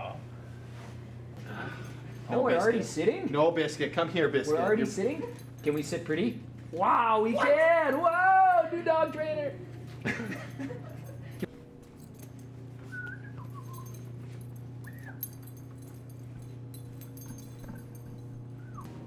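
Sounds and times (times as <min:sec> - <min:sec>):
low electrical hum: 0:00.0 - 0:19.0
puppy whining: 0:12.8 - 0:16.0, 0:17.1 - 0:19.0.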